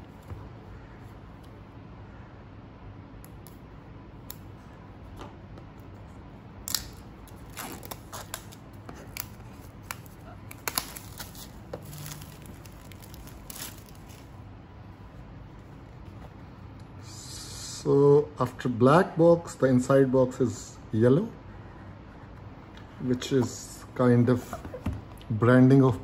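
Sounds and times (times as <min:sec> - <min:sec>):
plastic shrink-wrap crinkling: 0:06.7 - 0:14.4.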